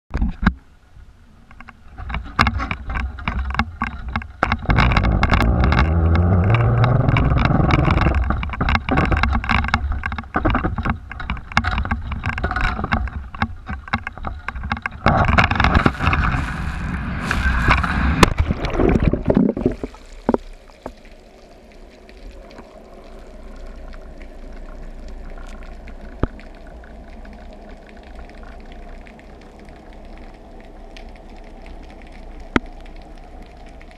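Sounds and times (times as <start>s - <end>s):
rushing wind: 2.0s - 20.0s
muffled underwater hiss: 15.0s - 33.9s.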